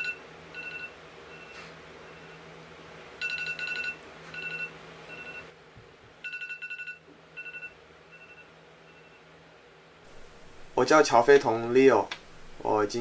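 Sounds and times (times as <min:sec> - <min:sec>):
electronic alarm beeping: 0:00.0 - 0:02.4, 0:03.2 - 0:05.5, 0:06.2 - 0:09.2.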